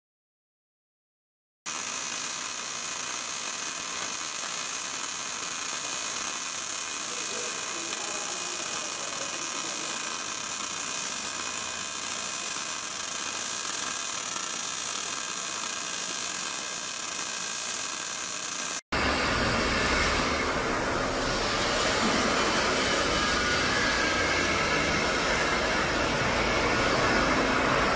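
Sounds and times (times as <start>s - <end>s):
faint steady tones: 1.7s - 18.8s
high hissing machine noise: 1.7s - 27.9s.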